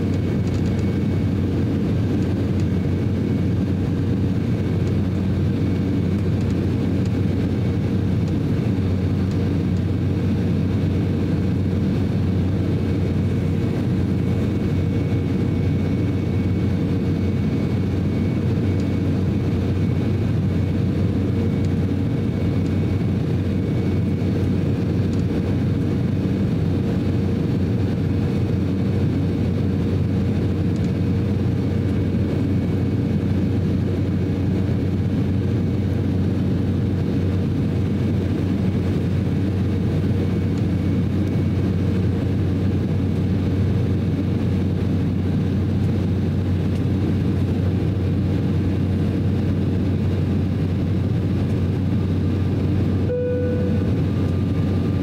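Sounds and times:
jet engines droning: 0:00.0 - 0:55.0
low hum: 0:00.0 - 0:55.0
faint whining tones: 0:51.4 - 0:55.0.

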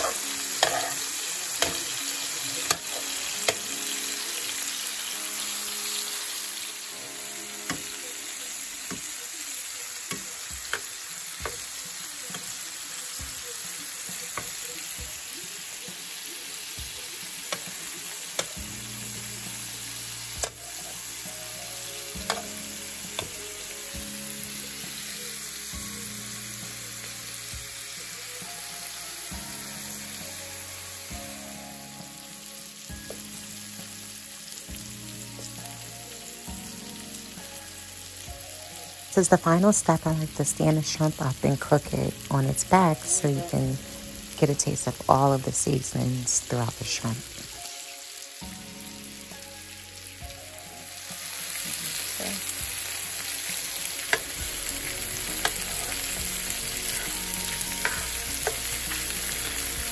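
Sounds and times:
metal tongs clicking on pan: 0:00.0 - 0:01.0, 0:01.6 - 0:02.0, 0:02.6 - 0:03.7, 0:10.1 - 0:11.6, 0:17.5 - 0:18.6, 0:22.2 - 0:22.6, 0:54.1 - 0:54.4, 0:55.4 - 0:55.7, 0:57.8 - 0:59.1
shrimp sizzling in a pan: 0:00.0 - 0:59.9.

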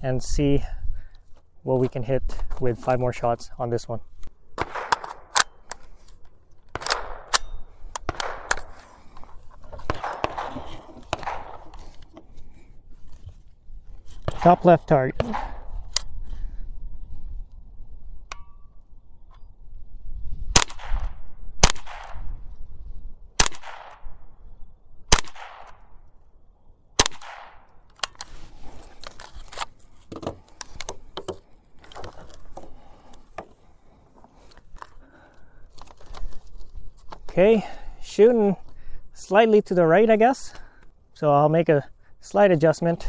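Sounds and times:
rifle shots with echo: 0:04.6 - 0:05.6, 0:06.7 - 0:08.8, 0:09.8 - 0:11.7, 0:14.3 - 0:15.7, 0:20.5 - 0:22.2, 0:23.4 - 0:24.3, 0:25.1 - 0:25.9, 0:27.0 - 0:27.7.

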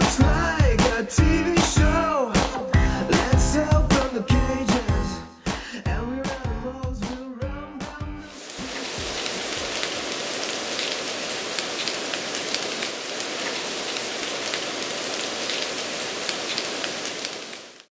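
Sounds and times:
steady rain with drop taps: 0:08.3 - 0:17.9.

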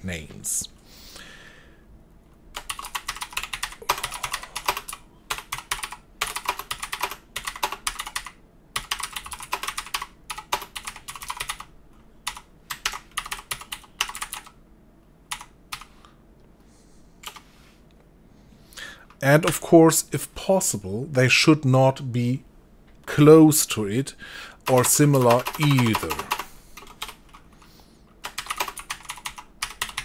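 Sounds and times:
typing on computer keyboard: 0:02.6 - 0:14.6, 0:15.3 - 0:15.9, 0:24.6 - 0:27.4, 0:28.2 - 0:30.0.

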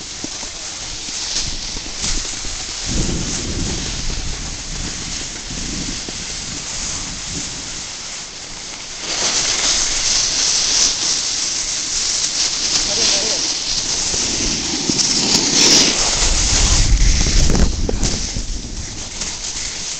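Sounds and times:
edges scraping over snow: 0:00.0 - 0:19.9
wind buffeting microphone: 0:00.9 - 0:08.0, 0:13.2 - 0:19.9.

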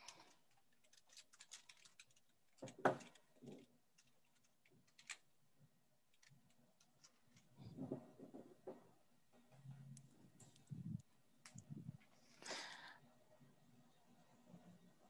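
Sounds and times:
computer keyboard typing: 0:00.0 - 0:05.2.

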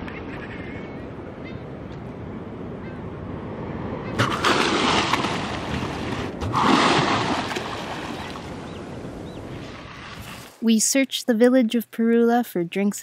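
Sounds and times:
dolphin surfacing splash and breath: 0:04.2 - 0:08.5.

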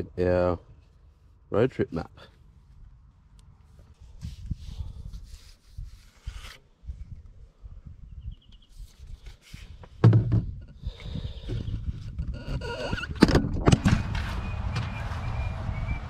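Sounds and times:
loud thump: 0:10.0 - 0:10.5, 0:13.2 - 0:15.4.

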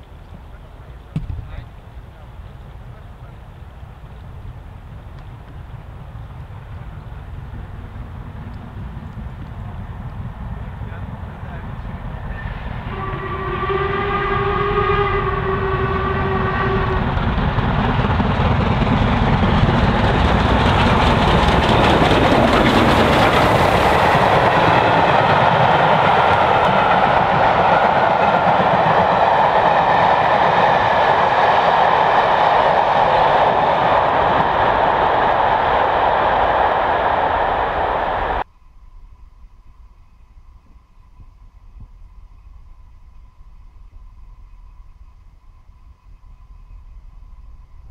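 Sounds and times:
steam train rumbling past: 0:00.0 - 0:38.5
locomotive whistle: 0:12.2 - 0:18.2, 0:19.7 - 0:38.4
wheels clattering over rail joints: 0:17.3 - 0:30.2.

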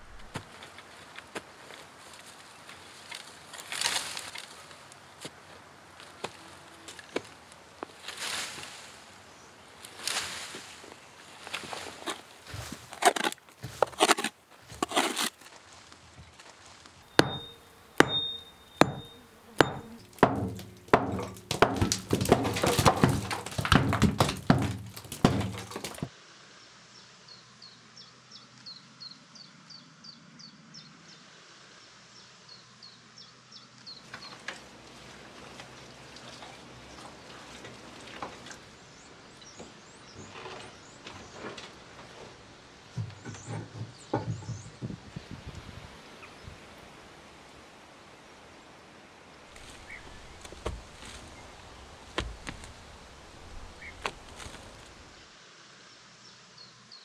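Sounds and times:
spade chopping into soil: 0:12.5 - 0:15.4, 0:17.1 - 0:26.1
faint high chirps: 0:17.1 - 0:20.2.

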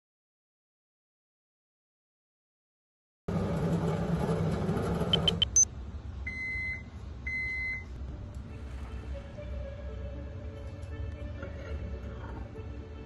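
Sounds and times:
microwave oven humming: 0:03.3 - 0:08.2
microwave beeps: 0:05.1 - 0:05.7, 0:06.3 - 0:07.9
short high chirps: 0:05.2 - 0:05.6.

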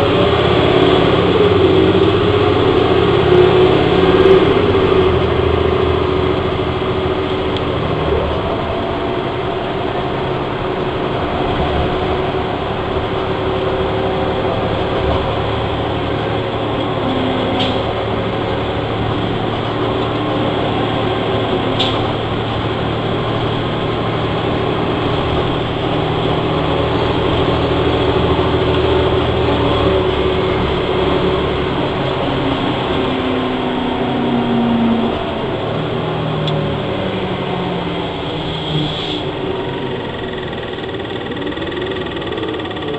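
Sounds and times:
bus diesel engine running: 0:00.0 - 0:42.9.

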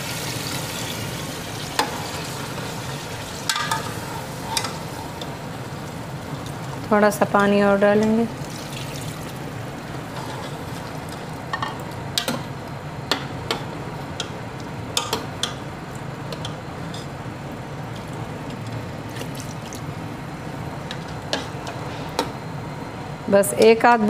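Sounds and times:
water pouring: 0:08.4 - 0:09.4, 0:19.1 - 0:19.9.

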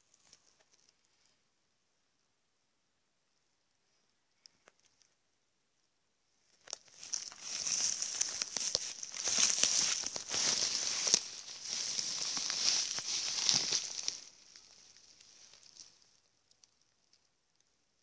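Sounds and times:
rustling shrubs and leaves: 0:06.4 - 0:17.4.

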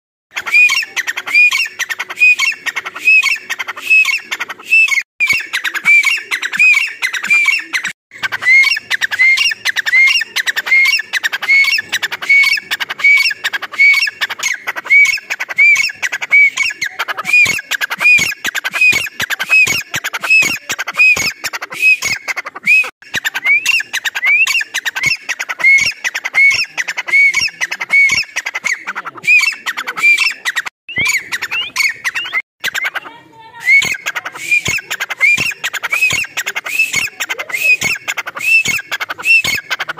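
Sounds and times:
francolin calling: 0:00.3 - 0:22.4, 0:23.1 - 0:32.8.

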